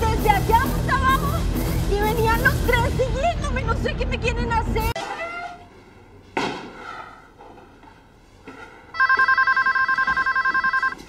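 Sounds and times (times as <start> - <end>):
electronic telephone ringing: 9.0 - 11.0.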